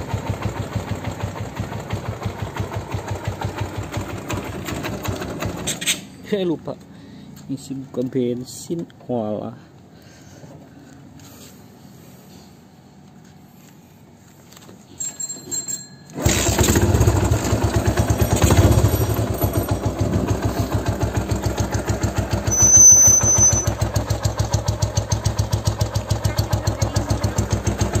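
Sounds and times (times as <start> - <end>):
motorcycle engine idling: 0.0 - 5.7, 16.2 - 28.0
motorcycle engine cranking: 0.0 - 6.2, 15.0 - 28.0
motorcycle engine revving: 16.2 - 28.0.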